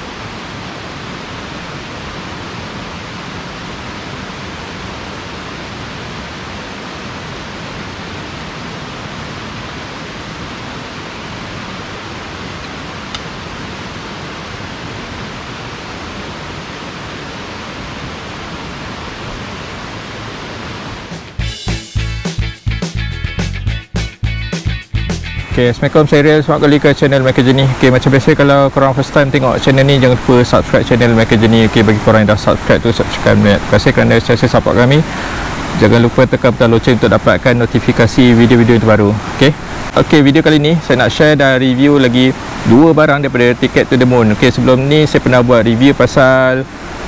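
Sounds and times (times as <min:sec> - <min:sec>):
water rushing: 0:00.0 - 0:21.4, 0:25.5 - 0:47.0
faint click: 0:12.6 - 0:13.3.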